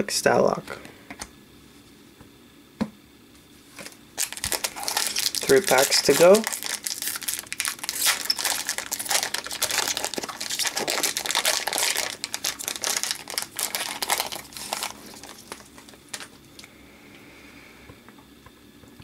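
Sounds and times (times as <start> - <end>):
foil wrapper crinkling: 3.7 - 16.6.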